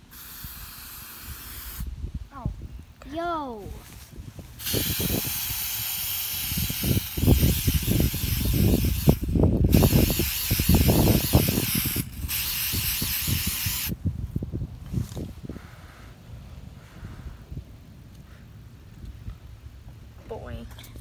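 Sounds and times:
spray can hissing: 0:00.0 - 0:01.9, 0:04.6 - 0:14.0.

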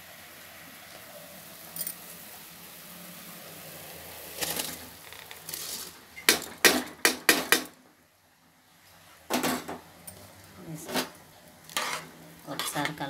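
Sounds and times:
rice pouring into water: 0:00.0 - 0:06.1.

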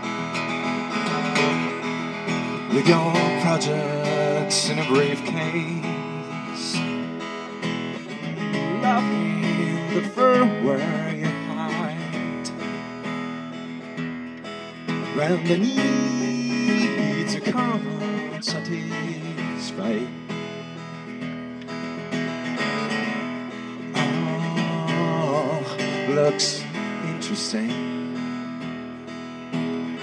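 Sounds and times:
acoustic guitar strumming: 0:00.0 - 0:30.0
man singing: 0:02.4 - 0:07.0, 0:08.6 - 0:12.7, 0:15.0 - 0:20.3, 0:24.0 - 0:28.0.

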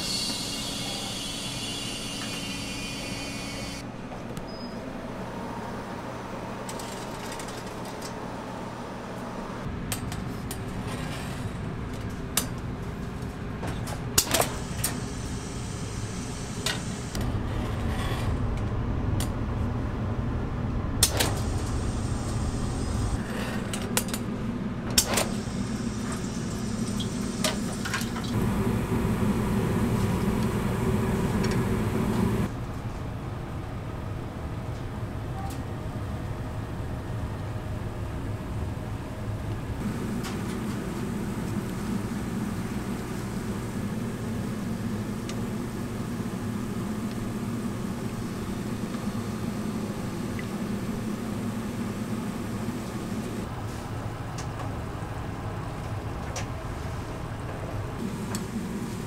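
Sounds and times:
machine hum: 0:25.4 - 0:32.6, 0:39.7 - 0:53.6.

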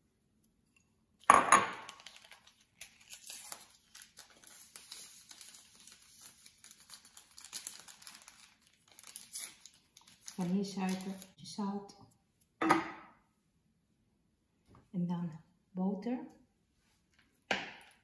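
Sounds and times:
paper sachet crinkling: 0:01.8 - 0:11.4
loud paper crackle: 0:01.9 - 0:11.4
sugar rustling as shaken out: 0:01.9 - 0:11.4.

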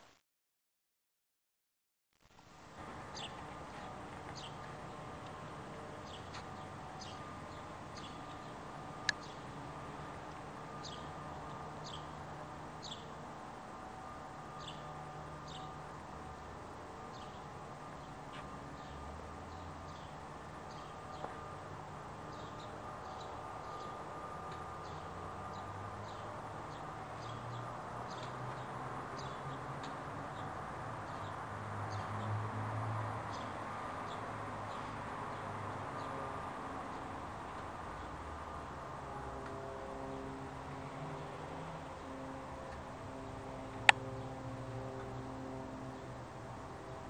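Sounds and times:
bird chirping: 0:03.1 - 0:05.0, 0:06.0 - 0:09.5, 0:10.7 - 0:11.2, 0:11.8 - 0:12.2, 0:12.8 - 0:13.1, 0:15.5 - 0:15.7.

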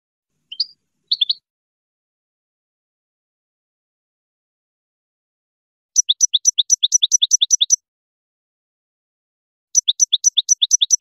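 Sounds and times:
goldfinch singing a rapid trill: 0:00.5 - 0:01.4, 0:06.0 - 0:07.8, 0:09.8 - 0:11.0.

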